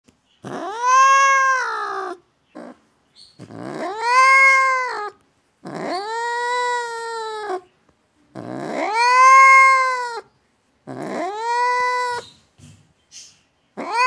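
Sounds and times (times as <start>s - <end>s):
cat yowling: 0.4s - 2.8s, 3.4s - 7.7s, 8.4s - 10.3s, 10.9s - 12.3s, 13.8s - 14.0s.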